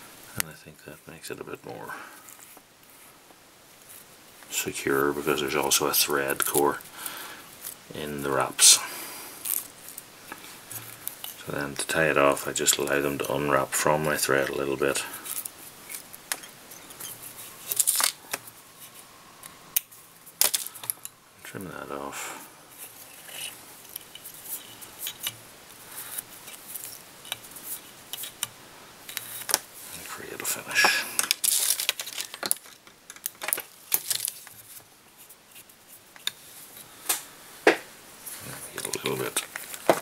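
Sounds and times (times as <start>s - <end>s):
small clicks and rustles of tools: 15.2s - 21.2s, 22.8s - 25.4s, 26.0s - 30.1s, 30.8s - 37.3s.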